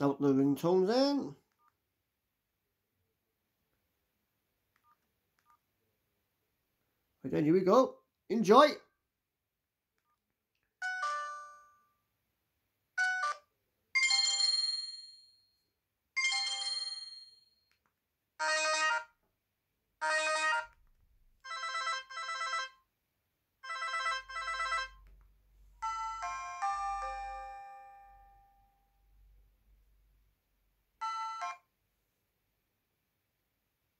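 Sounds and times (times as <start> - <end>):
phone alert tones: 10.8 - 11.8, 13.0 - 14.7, 25.8 - 28.8, 31.0 - 31.7.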